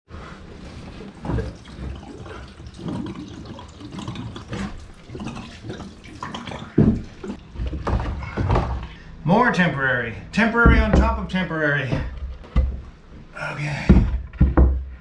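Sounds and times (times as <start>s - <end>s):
water draining and splashing: 1.0s - 8.0s
loud thump: 10.6s - 11.2s.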